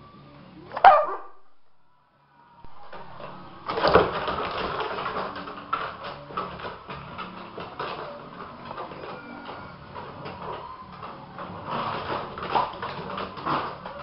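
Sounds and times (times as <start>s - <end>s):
dog barking: 0.7s - 1.5s
dogs scuffling in play: 2.8s - 14.0s.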